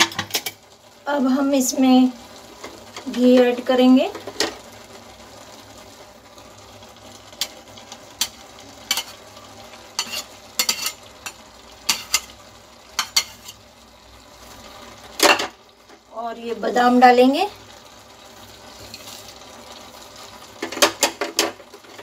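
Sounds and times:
faint food sizzling: 0.0 - 22.0
spatula scraping a bowl: 10.0 - 11.0
metal spatula knocking on pots: 20.6 - 22.0.

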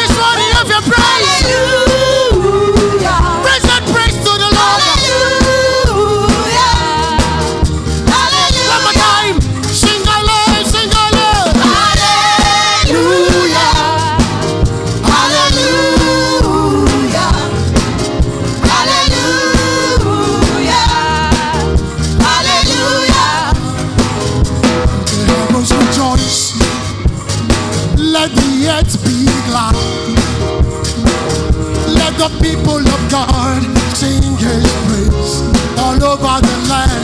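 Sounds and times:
worship team singing: 0.0 - 26.9
band music with drum beat: 0.0 - 37.0.

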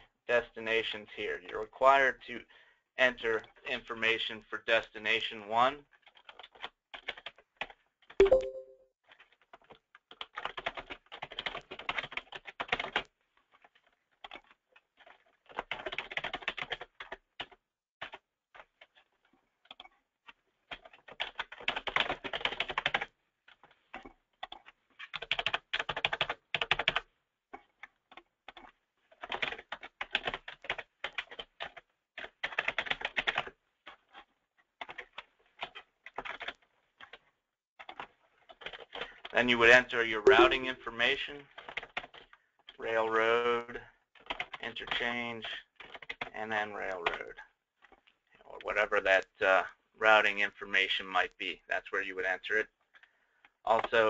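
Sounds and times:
computer keyboard typing: 6.0 - 8.7, 10.1 - 13.0, 14.2 - 18.2, 20.7 - 27.1, 28.5 - 33.5, 34.8 - 37.2, 38.6 - 39.0, 40.3 - 40.8, 44.2 - 45.0, 45.8 - 46.3.

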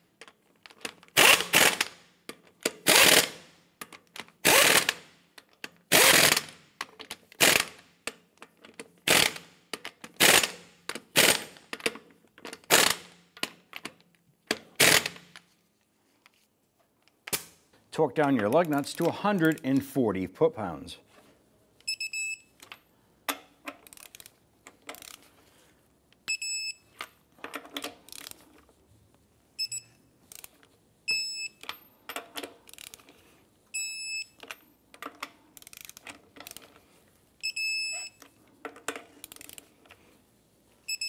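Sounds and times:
torque wrench short beeps: 21.9 - 22.6, 26.3 - 26.9, 29.6 - 30.0, 31.1 - 31.6, 33.8 - 34.4, 37.4 - 38.2
socket and ratchet clicking: 22.6 - 25.3, 31.6 - 33.1, 34.4 - 36.8, 39.1 - 39.8.

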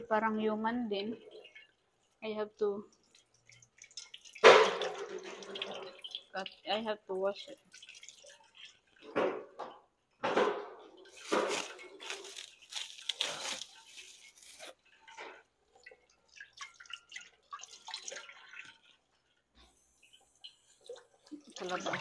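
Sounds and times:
tap water splashing into sink: 3.0 - 11.7, 20.4 - 22.0.

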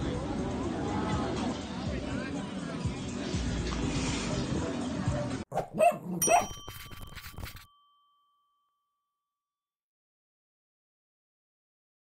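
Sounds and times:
dog barks: 5.5 - 6.6
bright chime ding: 6.2 - 9.2.

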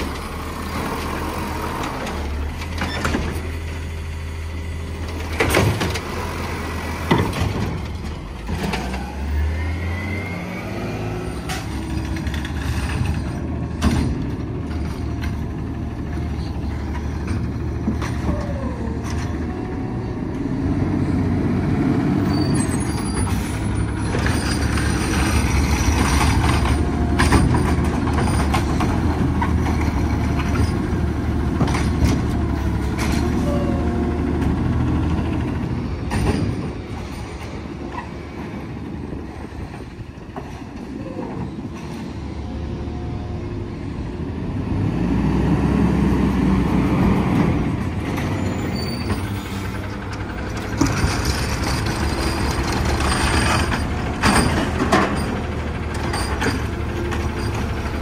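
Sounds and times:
garbage truck engine humming: 0.0 - 58.0
truck driving up and stopping: 0.0 - 58.0
trash cart knocks and clatters: 5.2 - 6.1, 7.0 - 9.0, 11.5 - 15.4, 25.9 - 30.8, 36.0 - 37.0, 50.2 - 58.0.

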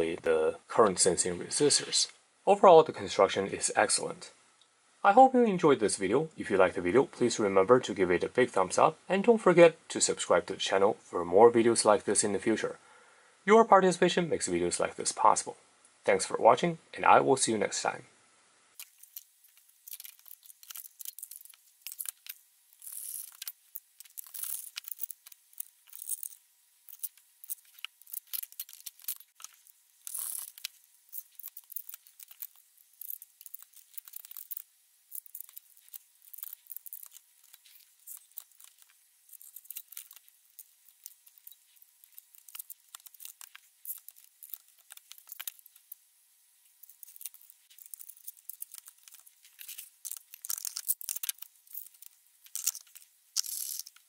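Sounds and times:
hands handling plastic parts: 18.8 - 46.0, 46.6 - 54.0.

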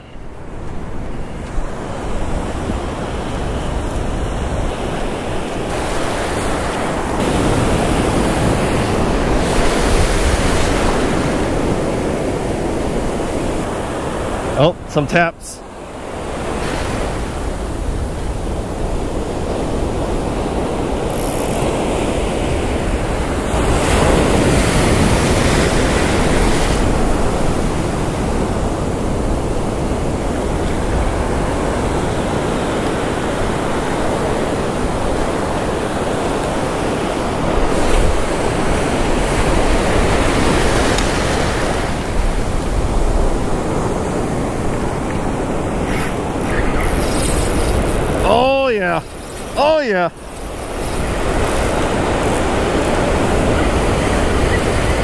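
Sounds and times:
wind on microphone: 0.0 - 14.6, 15.9 - 55.0
surf breaking: 33.7 - 55.0.

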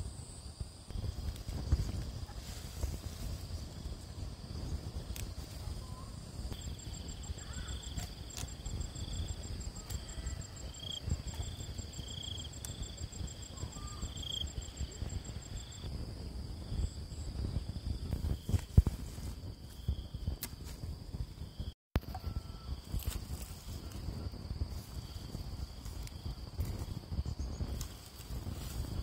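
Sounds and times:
rapid pulsed insect chirping: 0.0 - 29.0.

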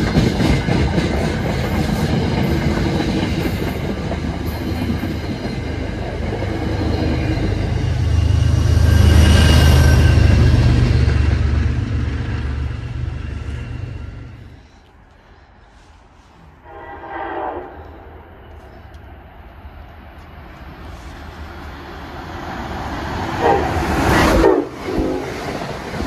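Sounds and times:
train rumbling past: 0.0 - 26.0
train horn blasts: 16.6 - 18.5, 23.4 - 25.3.

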